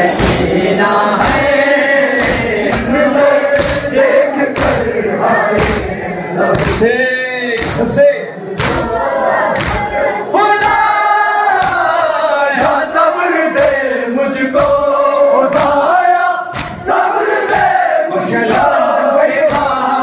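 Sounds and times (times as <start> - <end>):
men chanting together: 0.0 - 20.0
hands beating on chests: 1.2 - 3.9, 4.5 - 4.9, 5.5 - 6.8, 7.6 - 8.0, 8.6 - 9.0, 11.5 - 12.0, 19.4 - 20.0.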